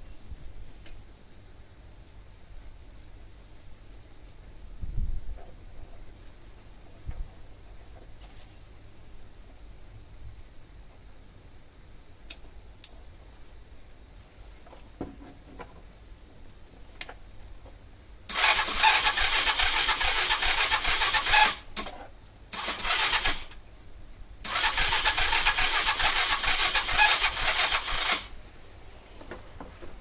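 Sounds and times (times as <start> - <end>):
scooter starter cranking engine: 18.3 - 21.9, 22.5 - 23.6, 24.4 - 28.3.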